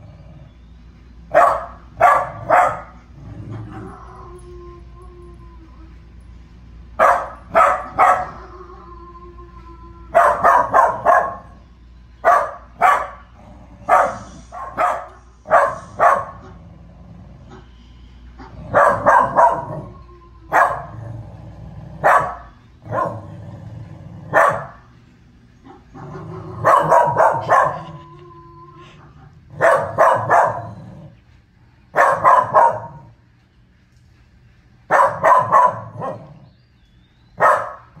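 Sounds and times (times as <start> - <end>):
small dog barking: 1.3 - 3.0, 7.0 - 8.4, 10.1 - 11.6, 12.2 - 16.6, 18.4 - 21.1, 22.0 - 23.3, 24.3 - 24.8, 25.7 - 28.0, 29.5 - 30.8, 31.9 - 33.1, 34.9 - 36.4, 37.4 - 38.0.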